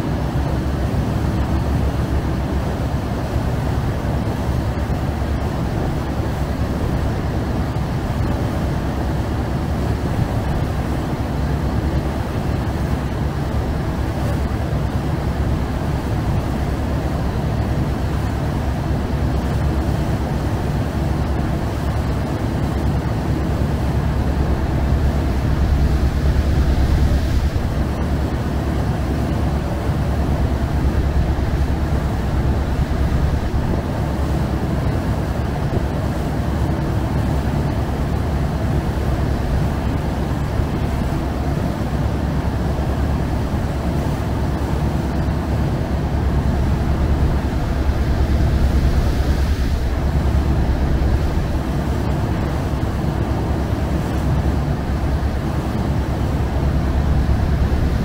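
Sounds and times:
boat diesel engine droning: 0.0 - 58.0
water rushing past hull: 0.9 - 58.0.

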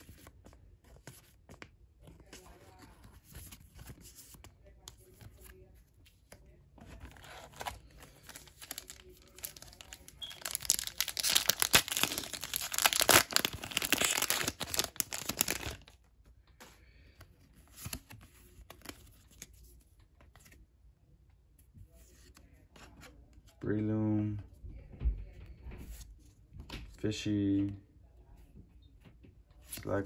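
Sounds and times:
foil wrapper crackling: 8.5 - 15.9.

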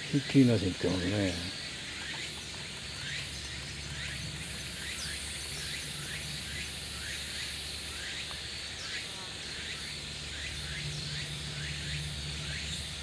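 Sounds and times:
steady high hiss: 0.0 - 13.0.

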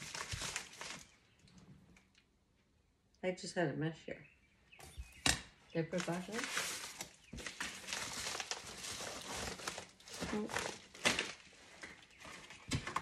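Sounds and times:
craft materials rustling: 0.0 - 1.6, 4.8 - 13.0.

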